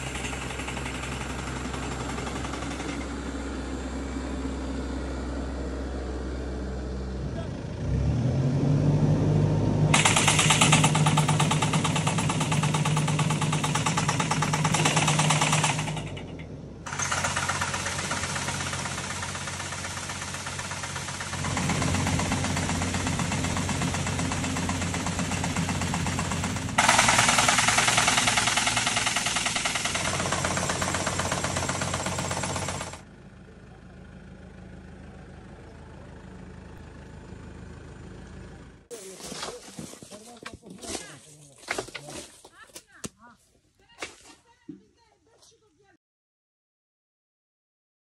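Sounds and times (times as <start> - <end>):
tractor engine hum: 0.0 - 40.7
fast mechanical knocking: 10.0 - 16.2, 16.9 - 33.0.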